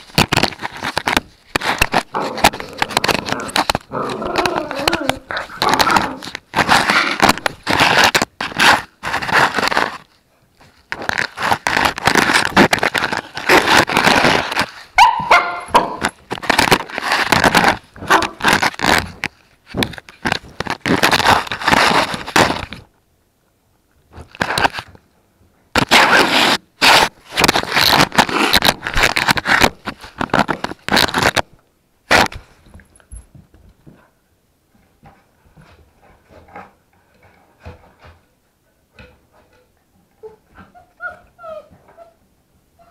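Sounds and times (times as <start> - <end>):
puppies chewing on a camera: 0.0 - 14.8, 16.0 - 22.8
puppy whining: 40.2 - 42.2.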